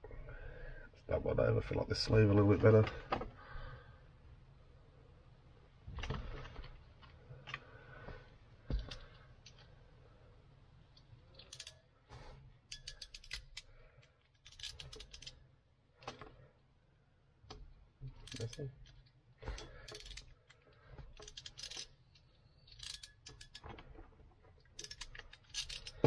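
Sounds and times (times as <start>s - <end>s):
wire pliers clicking and snipping: 12.7s - 15.4s, 17.5s - 20.6s, 22.7s - 23.7s.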